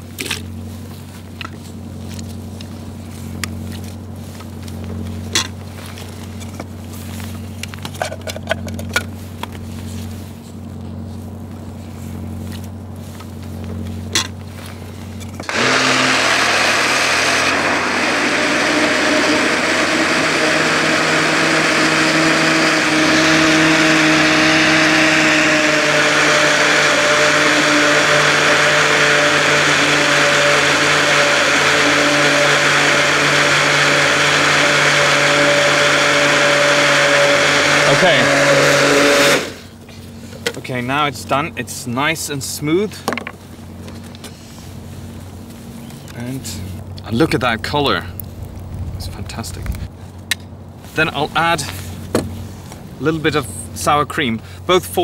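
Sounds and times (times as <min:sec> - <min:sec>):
steady low hum: 0:00.0 - 0:54.7
blender running: 0:15.4 - 0:39.7.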